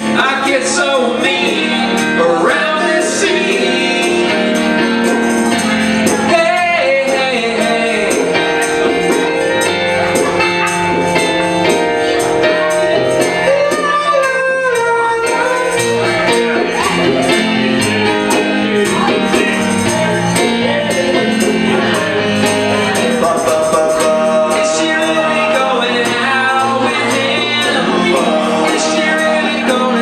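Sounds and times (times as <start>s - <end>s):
man singing into microphone: 0.0s - 11.2s, 12.0s - 30.0s
keyboard playing chords: 0.0s - 30.0s.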